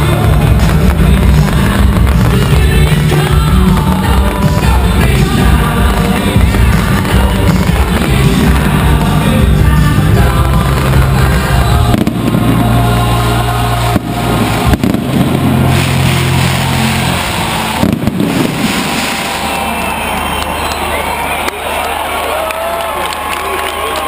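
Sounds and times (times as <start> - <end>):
loud music with bass notes: 0.0 - 20.7
fireworks bangs: 0.0 - 21.2.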